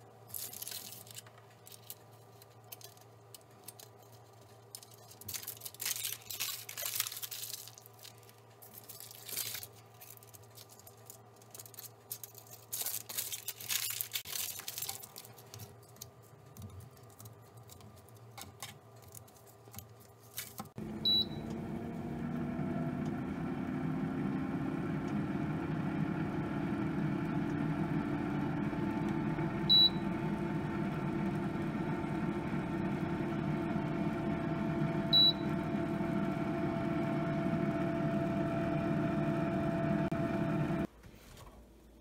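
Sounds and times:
aluminium foil crinkling: 0:00.2 - 0:20.8
air fryer fan humming: 0:20.8 - 0:40.9.

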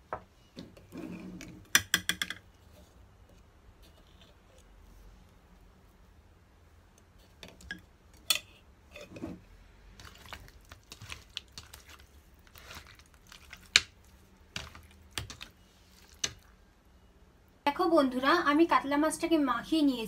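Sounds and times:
hands squishing fish: 0:09.9 - 0:16.5.

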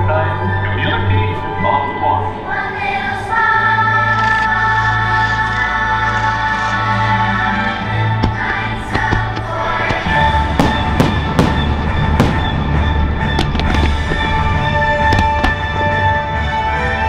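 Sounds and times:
loud music: 0:02.3 - 0:17.0
firework bangs: 0:08.2 - 0:16.1.

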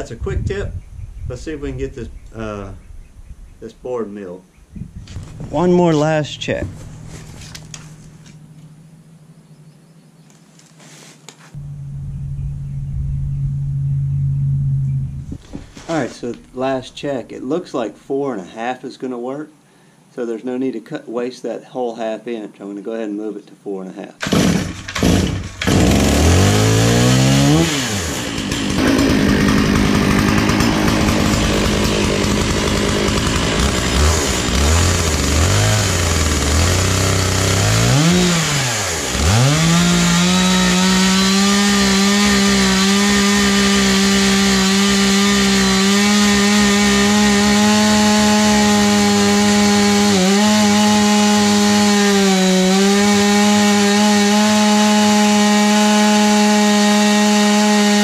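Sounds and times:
chainsaw revving and cutting log: 0:05.2 - 0:08.4, 0:24.2 - 0:58.0.

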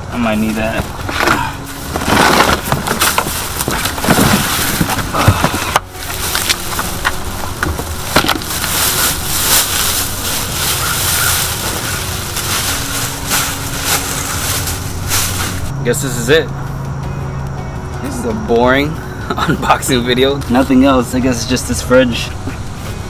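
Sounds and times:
cardboard scraping: 0:00.6 - 0:15.7
plastic bag crinkling: 0:00.9 - 0:15.7.

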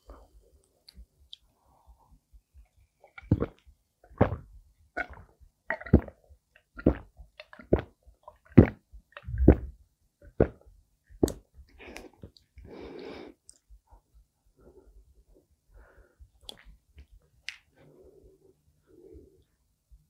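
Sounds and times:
person gulping a drink: 0:03.1 - 0:10.6.

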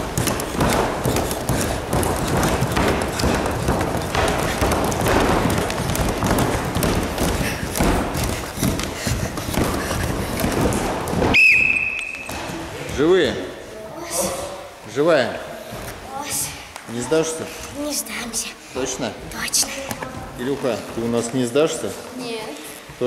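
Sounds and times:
thuds and taps on gym floor: 0:00.0 - 0:11.4, 0:12.2 - 0:13.4.

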